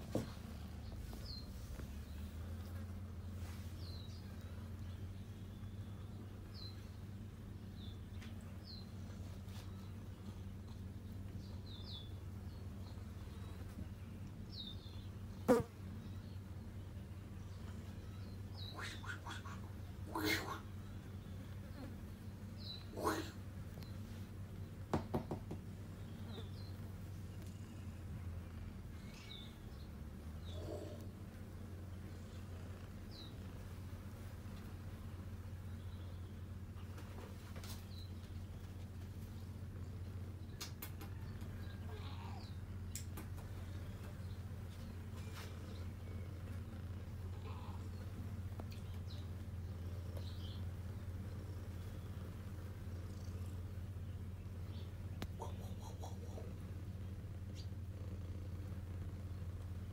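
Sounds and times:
low buzzing hum: 0.0s - 59.9s
faint bird chirps: 25.9s - 31.2s, 37.6s - 59.6s.

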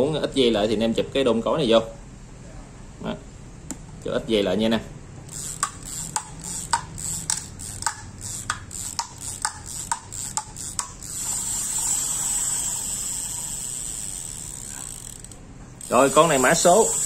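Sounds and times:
steady high hiss: 5.2s - 17.0s
fishing reel clicking: 5.3s - 17.0s.

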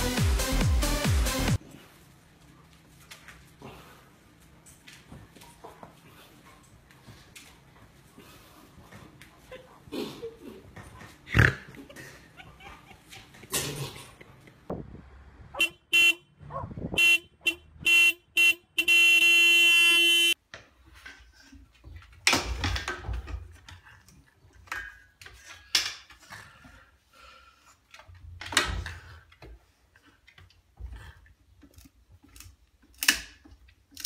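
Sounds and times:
car horn honking: 15.6s - 20.4s.

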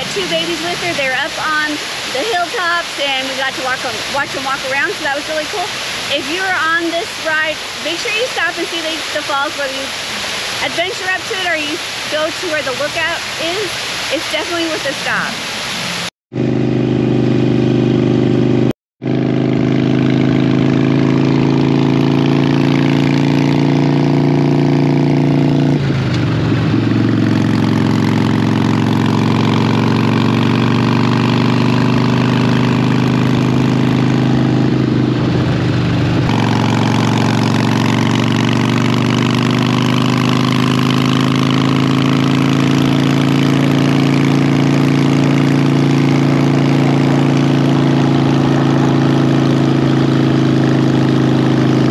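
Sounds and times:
motorcycle engine running: 0.0s - 15.2s, 16.3s - 51.9s
rushing hiss: 5.7s - 6.1s, 9.8s - 10.7s.

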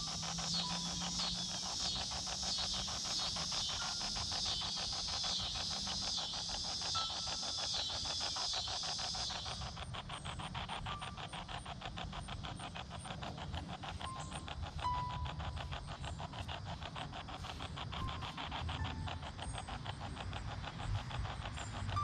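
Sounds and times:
repeating hiss: 0.0s - 10.4s.

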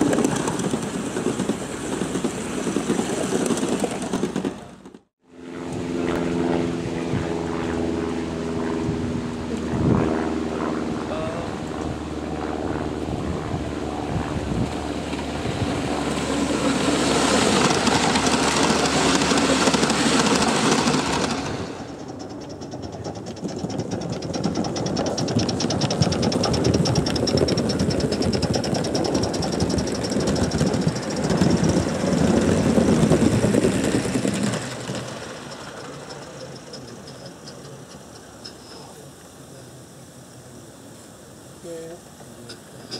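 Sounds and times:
model steam train clattering: 0.0s - 5.0s, 17.6s - 39.0s.

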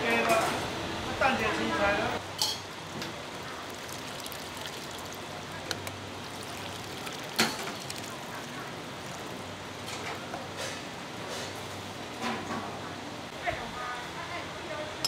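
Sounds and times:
liquid pouring and splashing: 2.7s - 10.5s.

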